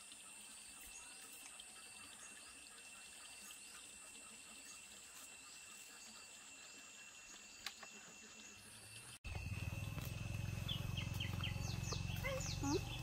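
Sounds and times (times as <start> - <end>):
low hum: 9.0 - 13.0.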